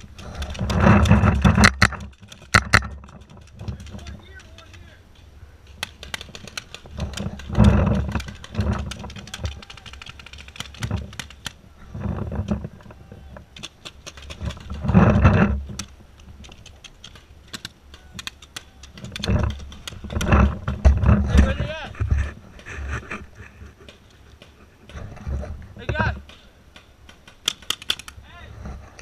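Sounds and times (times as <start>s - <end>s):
paintball markers popping: 0.0s - 11.6s, 15.7s - 20.3s
rumble and rustle on microphone: 0.0s - 17.4s, 18.9s - 23.9s, 24.6s - 26.3s, 28.2s - 29.0s.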